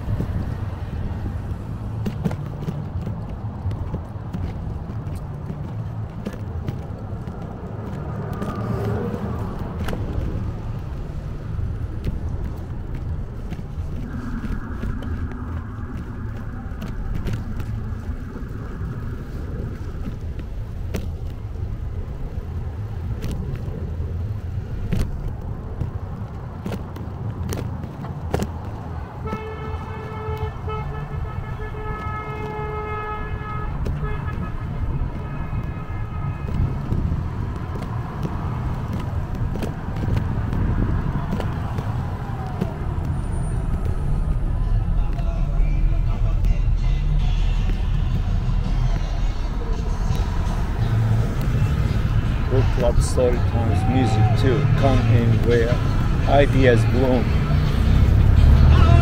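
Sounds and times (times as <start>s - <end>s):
low traffic rumble: 0.0s - 59.0s
steady high tone: 13.9s - 17.7s
vehicle horn honking: 29.2s - 36.6s.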